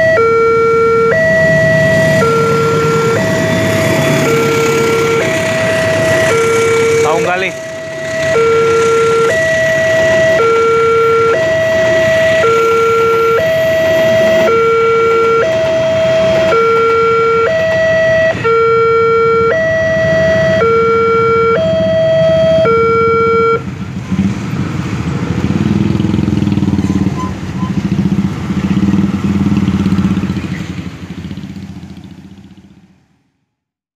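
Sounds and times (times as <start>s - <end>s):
level crossing alarm two-tone: 0.0s - 23.7s.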